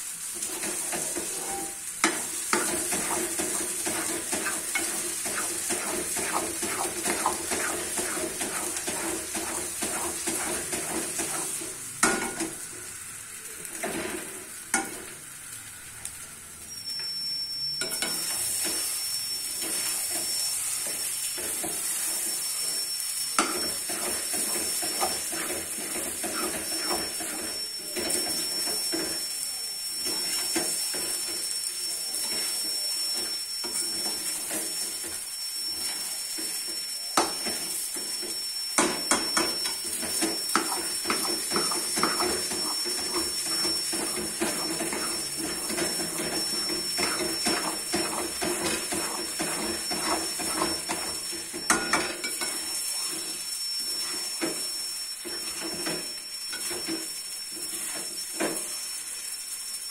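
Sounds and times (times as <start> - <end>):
metal spatula scraping a pan: 0.4 - 12.7, 19.6 - 29.3, 32.2 - 36.6, 39.0 - 57.0.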